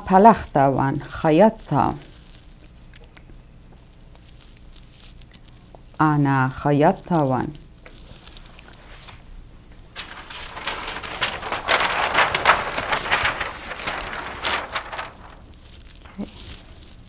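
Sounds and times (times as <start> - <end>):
stiff paper rustling: 7.9 - 17.0.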